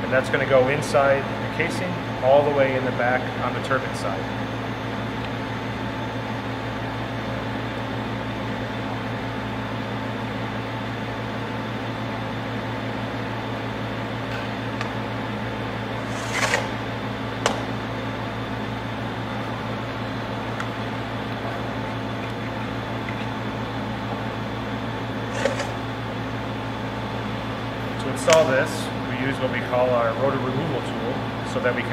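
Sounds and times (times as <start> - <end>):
machinery hum: 0.0 - 31.9
short scrape: 16.0 - 16.8.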